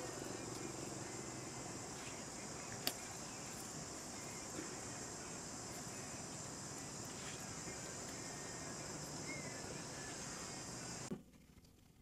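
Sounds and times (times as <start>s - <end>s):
high-pitched insect chorus: 0.0s - 11.1s.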